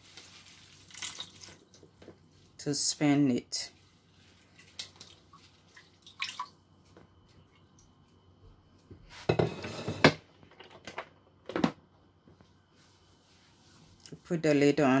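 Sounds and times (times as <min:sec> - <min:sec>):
wet leaves rustling: 0:00.0 - 0:01.6.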